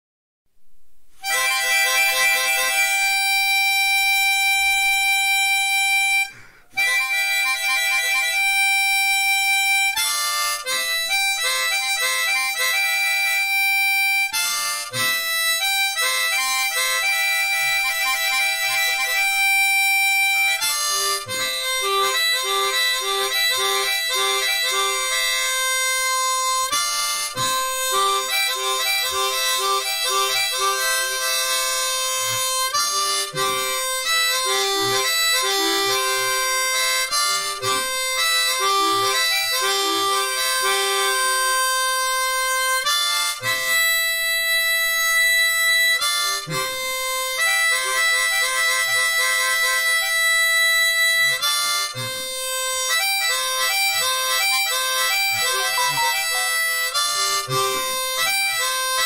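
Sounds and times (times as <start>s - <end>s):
harmonica playing: 1.2s - 59.0s.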